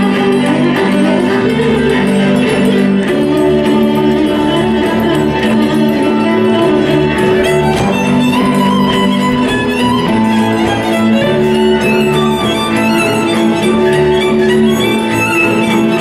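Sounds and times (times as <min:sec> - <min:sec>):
folk dance music: 0:00.0 - 0:16.0
lead fiddle: 0:00.0 - 0:16.0.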